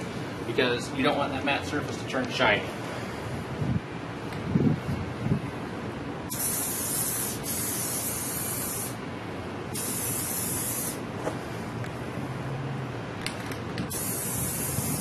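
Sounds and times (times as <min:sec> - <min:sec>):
aerosol can spraying: 0:06.3 - 0:09.0, 0:09.8 - 0:11.0, 0:13.9 - 0:15.0.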